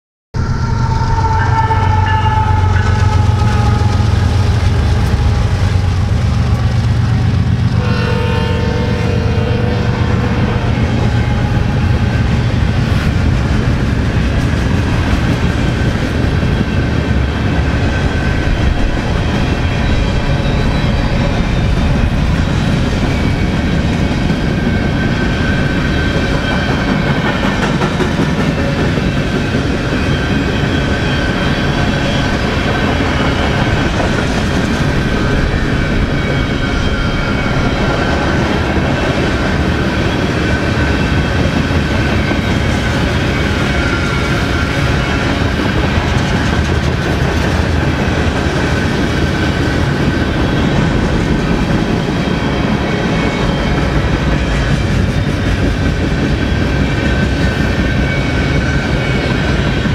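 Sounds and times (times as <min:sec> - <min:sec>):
freight train rumbling: 0:00.3 - 0:59.9
high whining tones: 0:00.4 - 0:07.2
train horn blast: 0:00.4 - 0:13.1.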